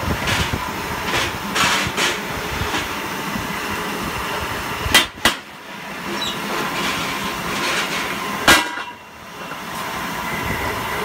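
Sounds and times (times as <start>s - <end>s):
machinery running: 0.0s - 11.0s
loud sharp metallic bang: 8.4s - 9.0s.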